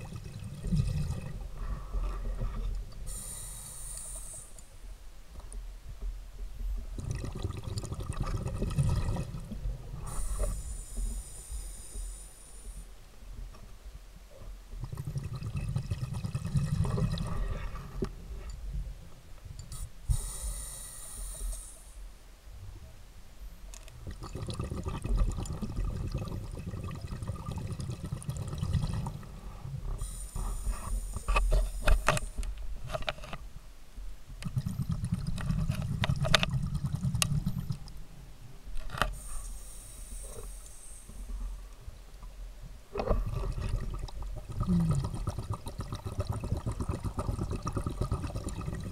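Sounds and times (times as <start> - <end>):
bubbling exhale underwater: 0.0 - 1.8, 7.0 - 11.0, 14.8 - 18.0, 24.0 - 29.3, 34.4 - 37.9, 43.0 - 48.9
regulator hiss on inhale: 1.6 - 4.8, 10.0 - 13.0, 19.7 - 22.1, 29.2 - 32.6, 39.0 - 41.8.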